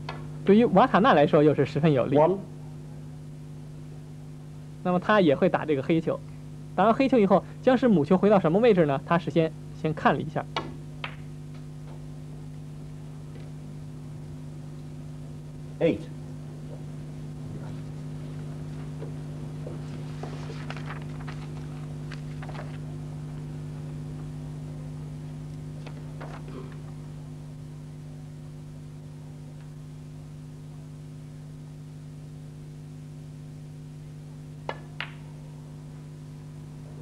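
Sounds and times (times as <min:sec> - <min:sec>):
steady electrical hum: 0:00.0 - 0:37.0
snooker balls colliding: 0:34.6 - 0:35.3
cue tip striking ball: 0:34.6 - 0:35.4.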